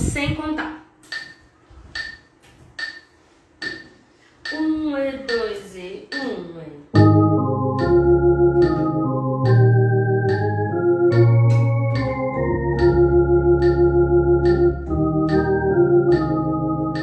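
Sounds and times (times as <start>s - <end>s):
metronome clicking: 1.0s - 1.4s, 2.0s - 7.2s, 7.8s - 17.0s
electronic organ playing hymn: 6.9s - 17.0s.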